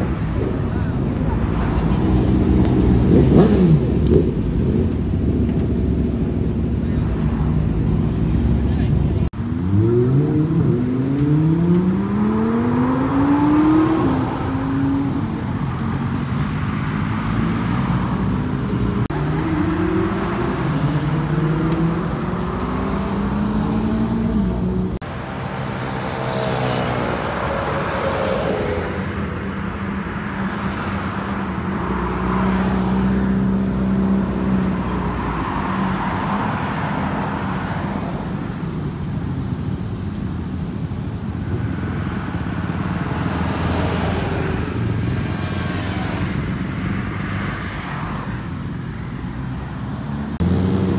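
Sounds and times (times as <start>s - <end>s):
motorcycle engine accelerating: 2.1s - 6.6s
motorcycle passing by: 50.3s - 50.9s.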